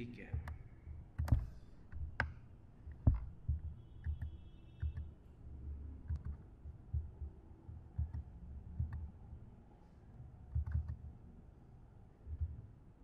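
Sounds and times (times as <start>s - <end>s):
computer mouse clicking: 0.3s - 5.1s, 6.0s - 9.1s, 10.5s - 11.1s.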